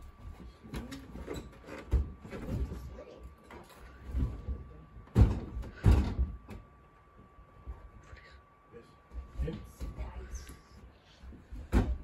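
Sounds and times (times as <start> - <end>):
refrigerator door knocks and thumps: 5.0 - 6.6, 11.6 - 12.0.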